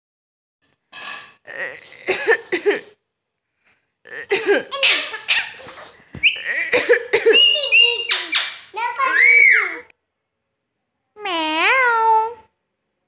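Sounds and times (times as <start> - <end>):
parakeet chattering and squawking: 4.7 - 9.7.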